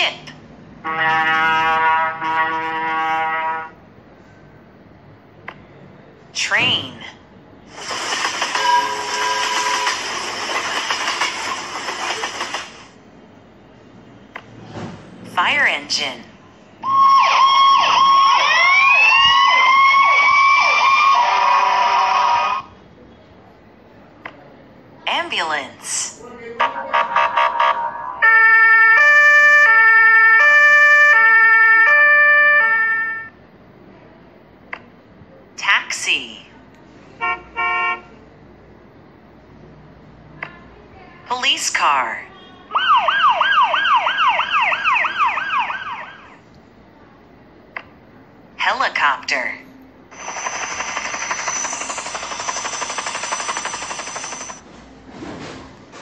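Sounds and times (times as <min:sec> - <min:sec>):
helicopter rotor blades chopping: 0:07.7 - 0:12.9, 0:50.1 - 0:54.6
ambulance siren hi-lo: 0:16.8 - 0:22.7, 0:26.6 - 0:33.4, 0:42.7 - 0:46.4, 0:50.1 - 0:54.6
high turbine whine: 0:50.1 - 0:54.6.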